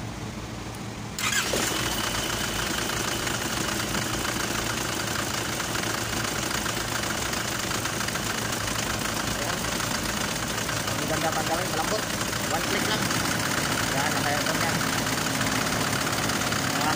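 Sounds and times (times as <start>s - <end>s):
diesel engine idling: 1.2s - 16.9s.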